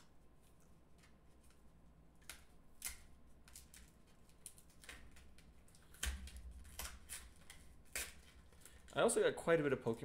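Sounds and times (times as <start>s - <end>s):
foil wrapper crinkling and tearing: 2.2s - 9.2s.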